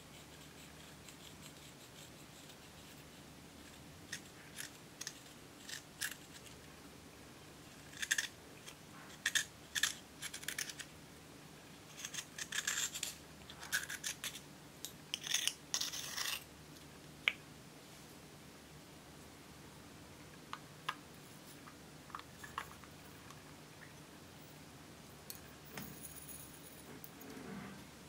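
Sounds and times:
metal tool scraping powder: 12.0 - 14.4, 15.1 - 16.5.

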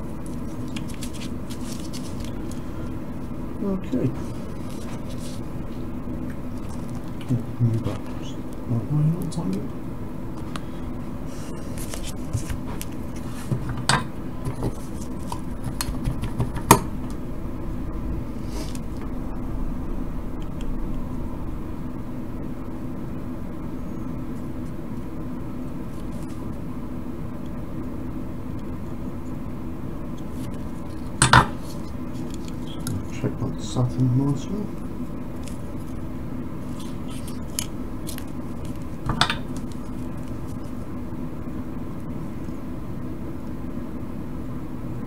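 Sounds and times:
fume extractor fan hum: 0.0 - 45.0.

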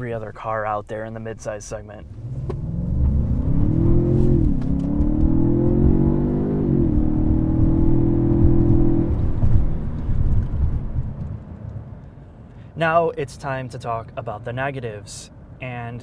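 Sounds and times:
car engine accelerating hard: 2.1 - 11.4.

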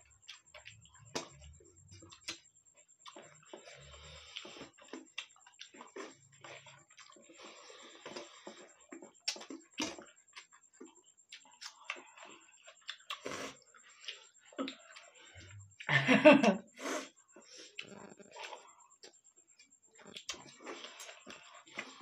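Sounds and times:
mouth smacks: 8.0 - 12.1, 12.8 - 13.6.

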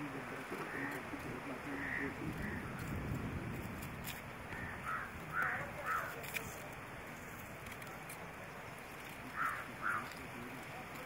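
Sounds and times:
outdoor background hiss: 0.0 - 11.0
crow cawing: 0.6 - 2.8, 4.5 - 6.2, 9.3 - 10.2.

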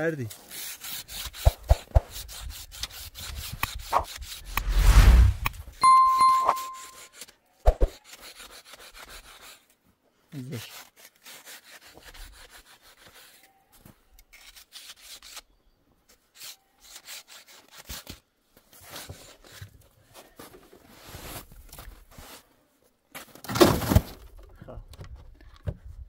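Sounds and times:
rough rasping and scraping: 0.3 - 5.6.

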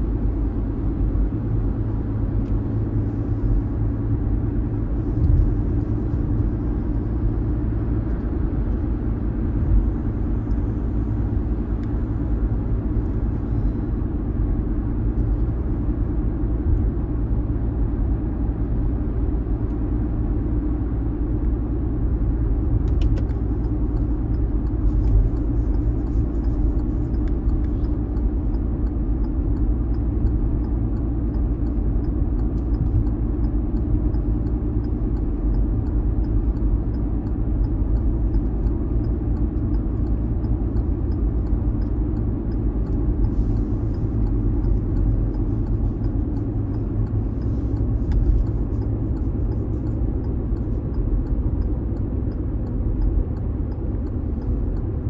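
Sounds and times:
engine and road rumble: 0.0 - 55.0
faint regular ticking: 22.9 - 55.0.

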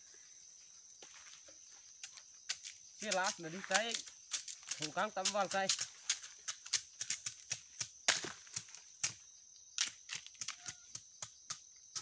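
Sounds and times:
high insect drone: 0.0 - 12.0
machetes chopping bamboo: 2.1 - 9.2, 9.8 - 12.0.

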